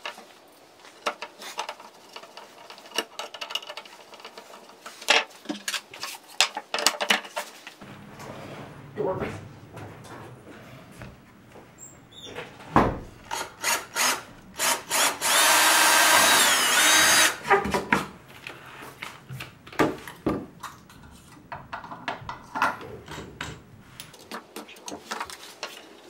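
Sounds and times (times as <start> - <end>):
knocks and clatter of handling: 0.9 - 13.3, 17.4 - 26.0
cordless drill into wood: 13.3 - 17.4.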